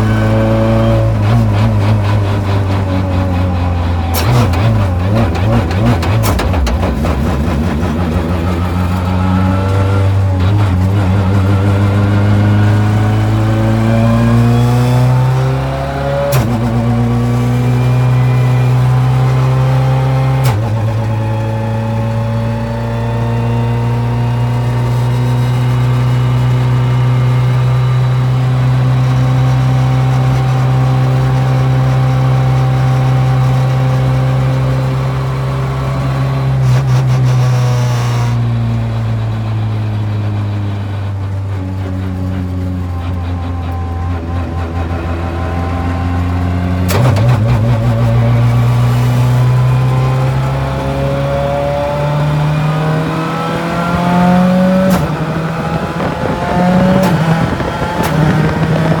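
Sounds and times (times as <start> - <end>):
car engine accelerating: 0.0 - 59.0.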